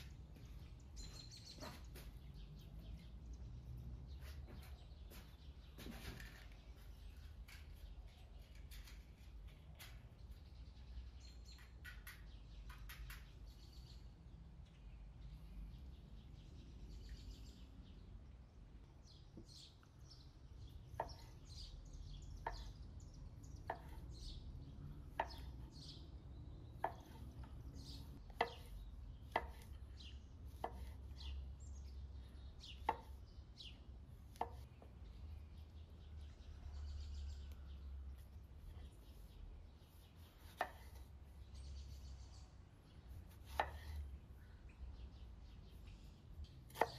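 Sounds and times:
birds chirping: 0.0s - 46.9s
knife cutting on wooden board: 23.6s - 24.2s, 26.8s - 29.8s, 30.5s - 31.3s, 39.9s - 41.2s, 43.1s - 44.1s, 46.7s - 46.9s.

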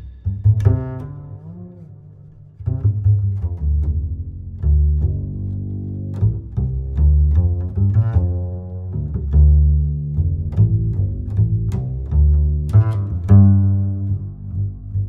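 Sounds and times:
plucked bass line: 0.0s - 15.0s.

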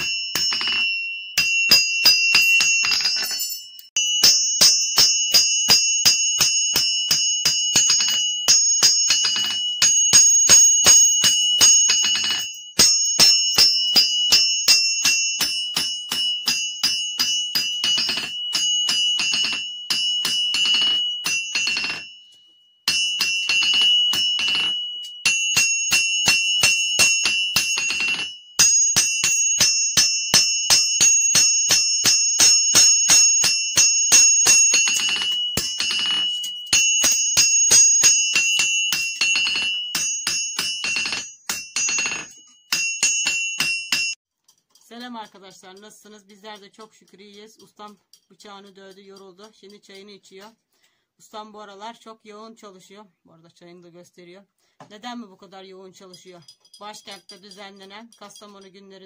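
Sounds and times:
hammer ringing on anvil: 0.0s - 44.2s.

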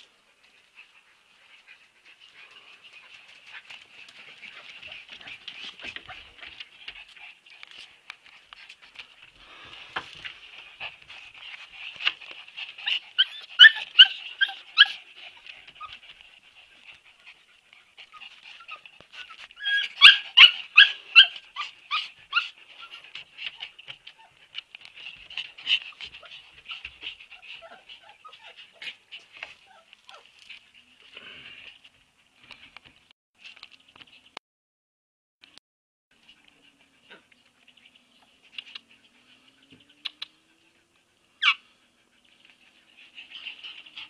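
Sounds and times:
puppies yipping and whimpering: 11.3s - 30.5s, 36.2s - 44.0s.

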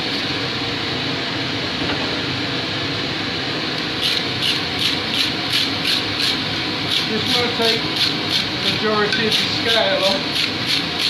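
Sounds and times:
wire brush scrubbing steel: 5.5s - 11.0s.

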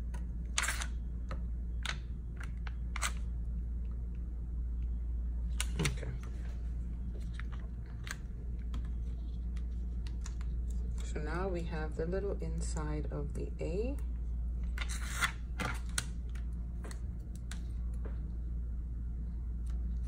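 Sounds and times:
steady low hum: 0.0s - 20.0s
vinyl peeling clicks and crackles: 7.1s - 11.2s, 14.6s - 18.0s.

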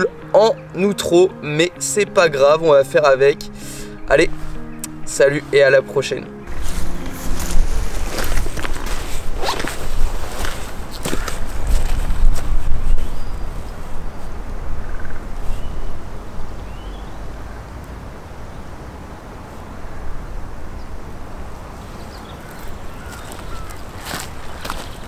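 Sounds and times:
wind rumbling on microphone: 6.5s - 25.0s
birds chirping: 12.8s - 17.7s, 21.6s - 25.0s.

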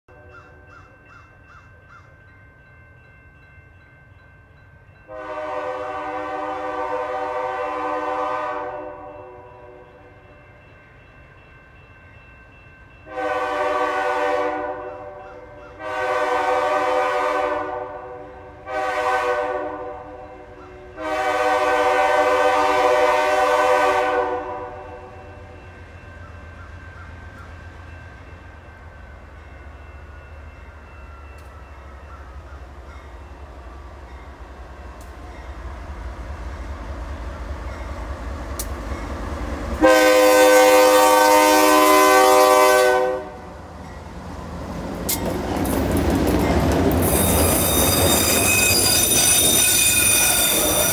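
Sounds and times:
low locomotive engine rumble: 0.1s - 50.9s
locomotive air horn blasts: 5.1s - 9.9s, 13.1s - 15.2s, 15.8s - 20.3s, 20.9s - 25.1s, 39.8s - 43.6s.

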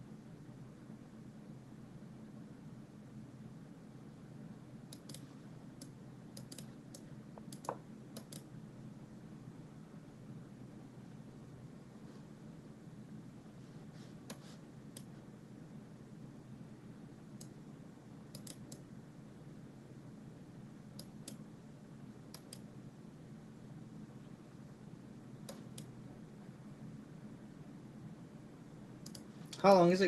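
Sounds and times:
low steady hum: 0.0s - 30.0s
computer mouse clicking: 4.9s - 8.5s, 14.2s - 15.2s, 18.3s - 18.9s, 20.9s - 21.4s, 22.3s - 22.7s, 25.4s - 25.9s, 29.0s - 29.3s.

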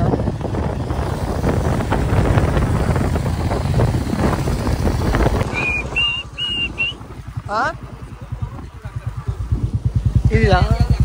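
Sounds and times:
motorcycle engine rumble: 0.0s - 11.0s
wind buffeting microphone: 0.0s - 11.0s
high whistling notes: 5.4s - 7.0s.

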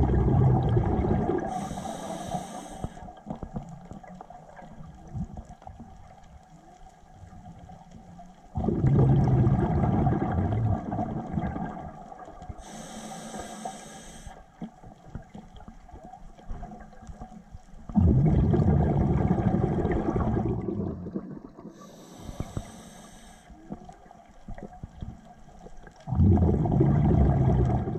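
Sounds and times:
rumbling rush of exhaled bubbles: 0.0s - 1.7s, 8.5s - 12.6s, 17.9s - 21.8s, 26.0s - 27.9s
high hiss of regulator inhale: 1.5s - 3.1s, 12.6s - 14.5s, 21.8s - 23.6s.

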